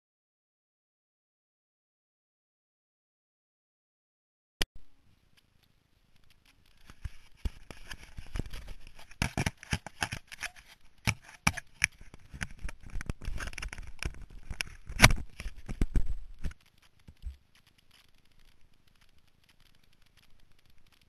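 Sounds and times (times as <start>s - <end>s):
sharp clicks and knocks: 5.3s - 21.0s
fingers scraping on camera housing: 6.8s - 17.4s.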